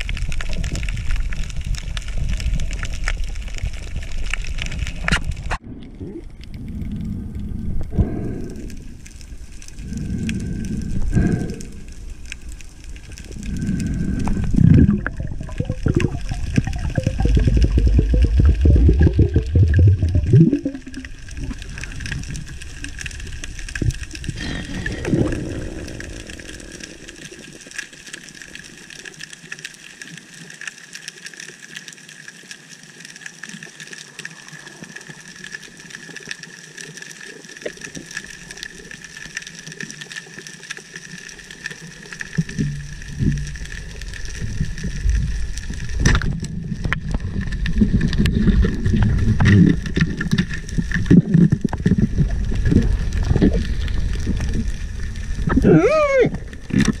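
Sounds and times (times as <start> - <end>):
underwater rushing and bubbling: 0.0 - 57.0
underwater hiss: 6.6 - 29.1.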